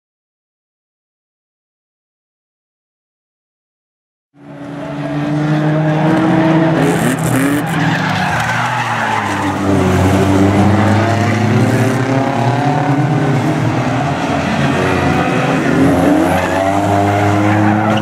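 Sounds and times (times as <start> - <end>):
racing car engines revving: 4.4 - 18.0
tyres skidding: 4.5 - 18.0.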